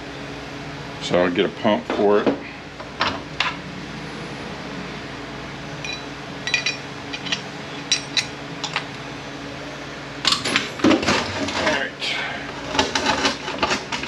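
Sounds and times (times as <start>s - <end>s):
steady mechanical hum: 0.0s - 14.0s
metal parts clinking: 5.8s - 8.9s.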